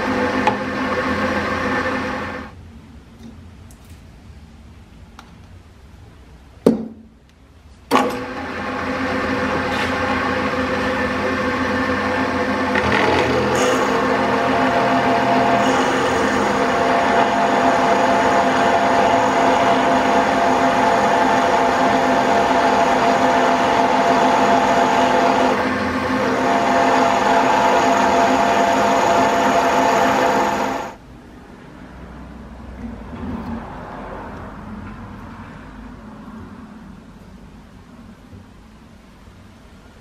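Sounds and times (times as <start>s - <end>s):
drill press motor humming: 7.9s - 31.0s.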